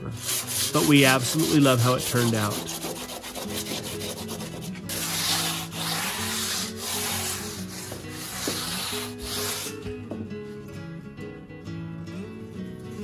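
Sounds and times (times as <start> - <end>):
sandpaper rasping on concrete: 0.1 - 10.0.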